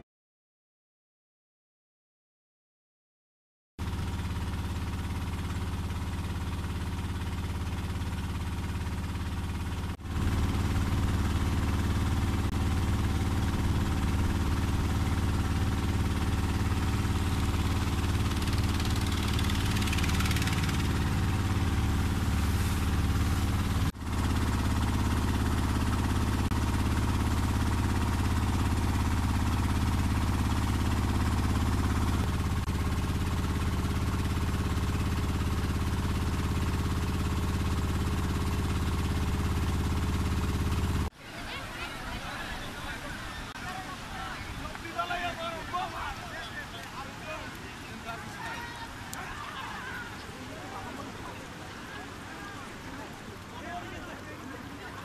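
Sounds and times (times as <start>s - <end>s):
boat engine droning: 3.8s - 55.0s
rushing water: 41.2s - 55.0s.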